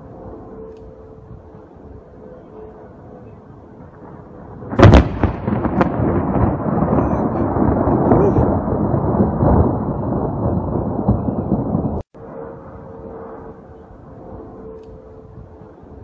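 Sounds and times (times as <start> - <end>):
thunderclap: 3.8 - 12.2
rumble of thunder: 3.8 - 14.5.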